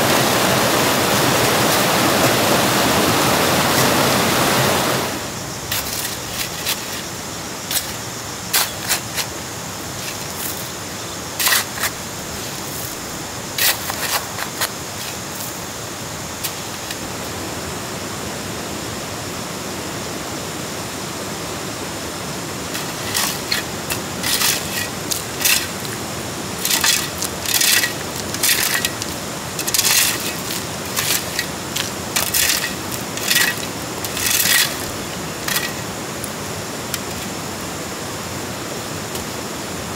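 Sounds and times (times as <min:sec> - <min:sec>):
steady background hiss: 0:00.0 - 0:39.9
objects clattering and scraping: 0:05.7 - 0:07.1, 0:22.7 - 0:26.0, 0:26.6 - 0:35.9.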